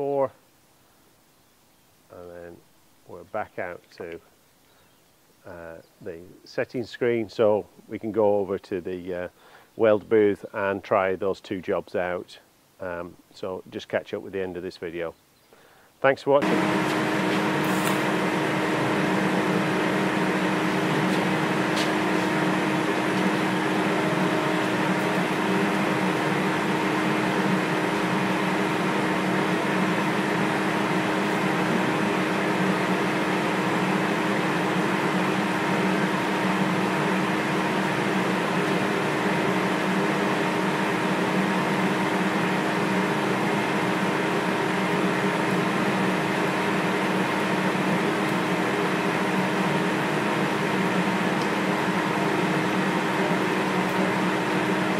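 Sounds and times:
welding arc hissing: 16.4s - 33.9s
low hum: 16.4s - 45.8s.

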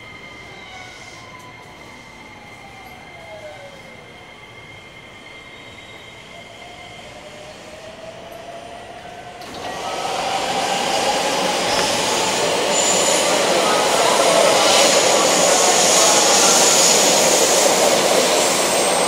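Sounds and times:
rumble of wheels on rails: 7.2s - 19.0s
train motor whine: 9.4s - 19.0s.

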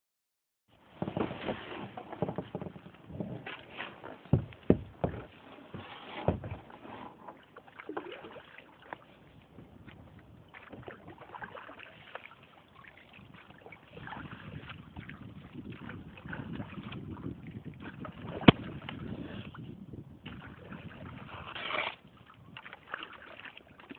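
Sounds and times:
paddling and water noise: 0.7s - 23.9s
knocks against canoe hull: 4.3s - 5.3s, 6.2s - 6.7s.

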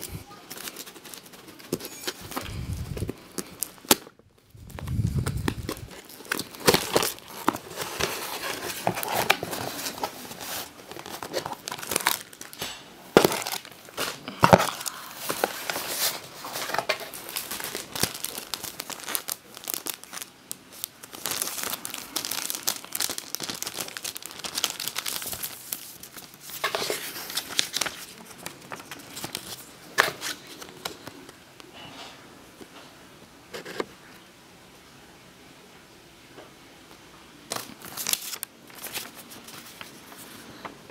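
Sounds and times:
plastic wrap rustling: 0.0s - 31.3s, 37.5s - 40.9s
cardboard tearing and crinkling: 4.7s - 30.7s, 37.5s - 40.2s.

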